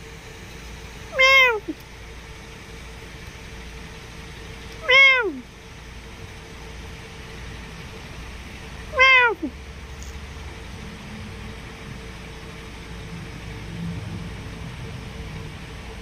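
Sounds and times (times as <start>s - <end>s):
low steady background rumble: 0.0s - 16.0s
cat meowing: 1.1s - 1.8s, 4.8s - 5.4s, 8.9s - 9.6s.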